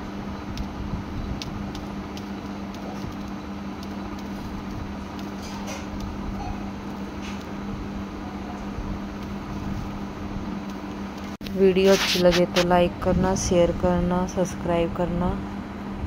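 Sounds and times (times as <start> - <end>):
electrical hum: 0.0 - 16.0
cloth rustling: 11.8 - 12.6.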